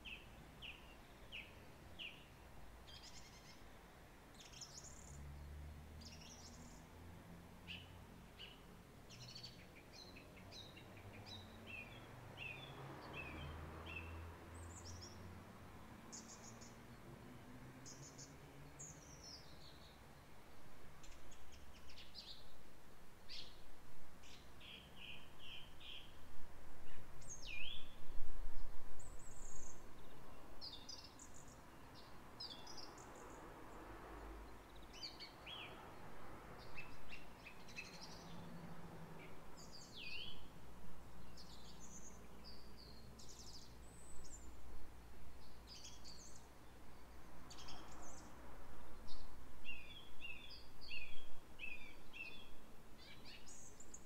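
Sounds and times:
songbirds chirping and singing: 0:07.7 - 0:15.3, 0:16.0 - 0:20.3, 0:36.6 - 0:40.5, 0:49.0 - 0:54.0
wind rumble on microphone: 0:25.5 - 0:30.8.

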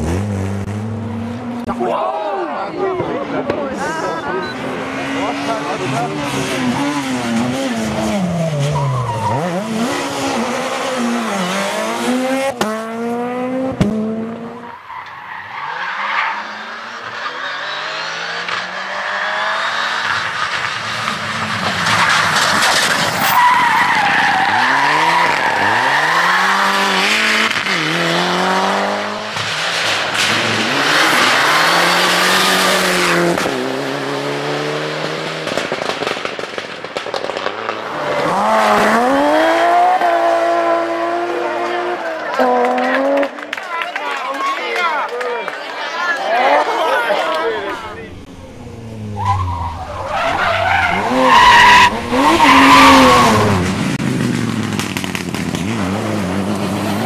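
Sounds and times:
rally car engines revving: 0:00.0 - 0:43.6, 0:46.4 - 0:57.0
tyre squeal: 0:49.0 - 0:53.5.

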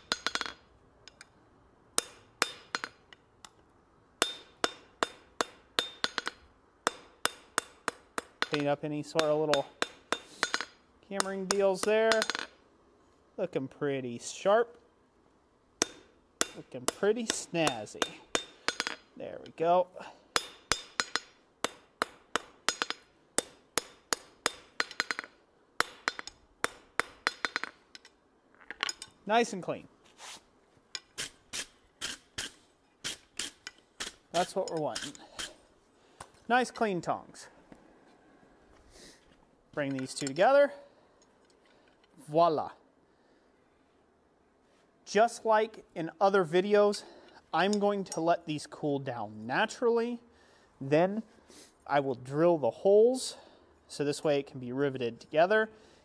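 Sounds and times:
hammer striking hot steel on anvil: 0:00.0 - 0:01.3, 0:02.0 - 0:03.0, 0:04.2 - 0:08.6, 0:09.2 - 0:12.5, 0:15.8 - 0:19.1, 0:20.3 - 0:27.8.

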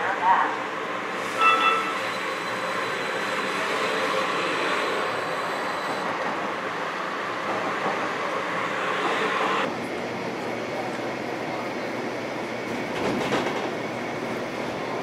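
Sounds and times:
train wheels rumbling on rail: 0:01.0 - 0:15.0.

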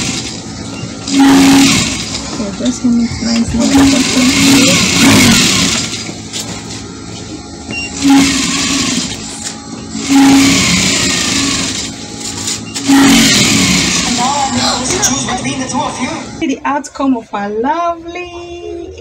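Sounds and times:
electric sewing machine running: 0:00.0 - 0:06.6, 0:08.0 - 0:14.6.

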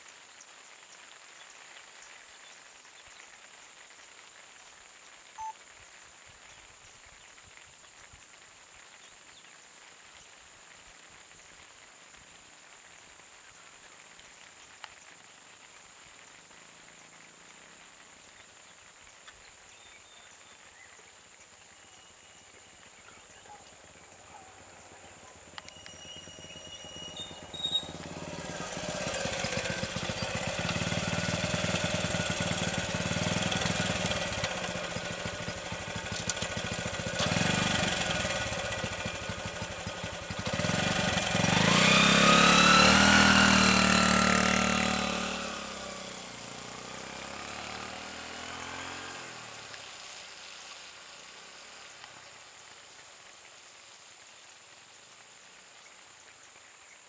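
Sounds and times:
vehicle engines running: 0:23.7 - 0:49.8
vehicle passing with sliding pitch: 0:25.1 - 0:36.1, 0:36.8 - 0:51.6.

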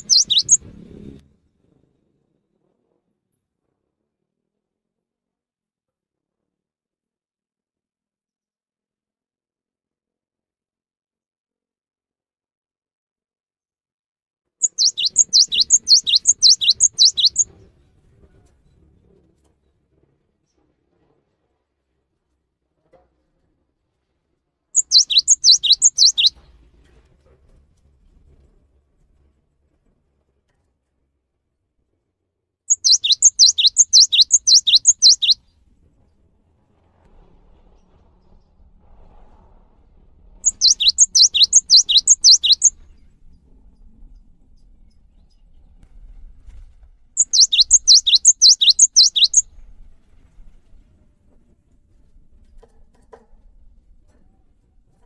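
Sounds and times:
bird singing two-note phrase: 0:00.0 - 0:00.6, 0:24.9 - 0:26.3
bird whistling downward notes: 0:00.0 - 0:00.6, 0:14.6 - 0:17.5, 0:24.8 - 0:26.4, 0:32.7 - 0:35.4, 0:40.4 - 0:42.7, 0:47.2 - 0:49.4.

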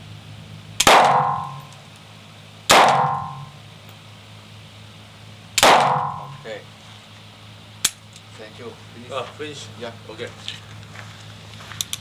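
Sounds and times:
pistol shots echoing indoors: 0:00.8 - 0:01.7, 0:02.7 - 0:03.5, 0:05.6 - 0:06.4.

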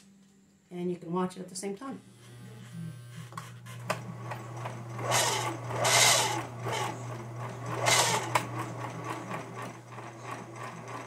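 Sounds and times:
sewing machine motor hum: 0:02.2 - 0:11.0
gear whine: 0:03.2 - 0:10.5.

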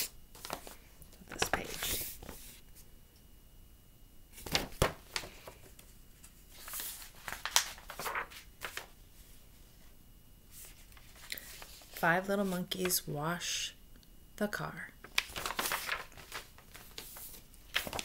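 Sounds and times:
book pages rustling: 0:00.0 - 0:02.9, 0:04.4 - 0:09.0, 0:10.5 - 0:12.9, 0:15.0 - 0:18.0.

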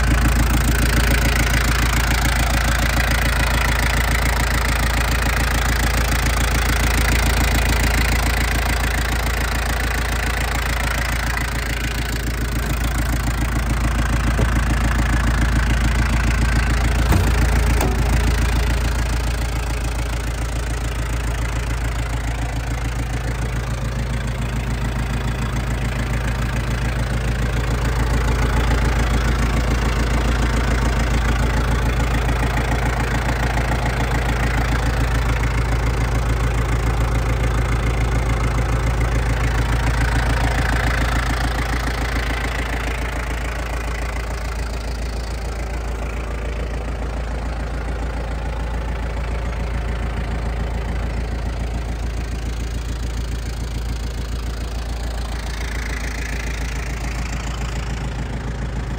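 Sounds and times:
tractor diesel engine idling: 0:00.0 - 0:58.9
brief knock: 0:14.4 - 0:14.7, 0:17.0 - 0:18.5.

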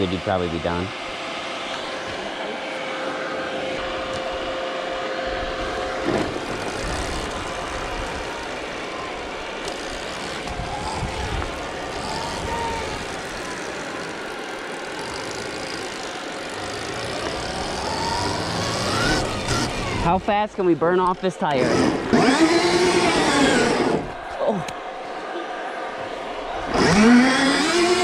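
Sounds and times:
electric motor whining: 0:01.6 - 0:20.3, 0:21.0 - 0:24.3, 0:26.6 - 0:28.0
wind rush and rumble: 0:10.4 - 0:13.2.

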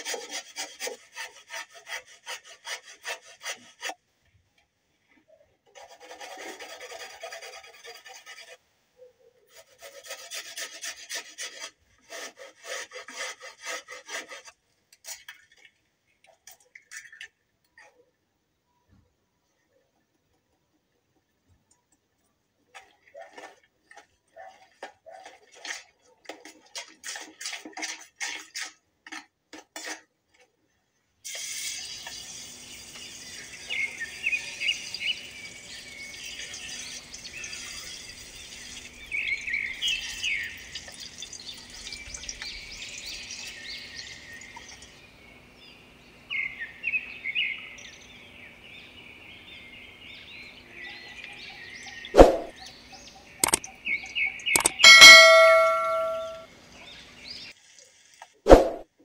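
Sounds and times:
metal spoon scraping plastic bowl: 0:26.4 - 0:30.1.

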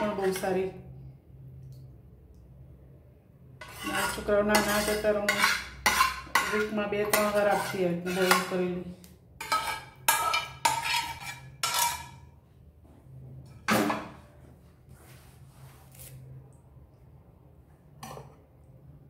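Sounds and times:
metal spoon clanking on frying pan: 0:03.6 - 0:08.6, 0:09.4 - 0:12.3.

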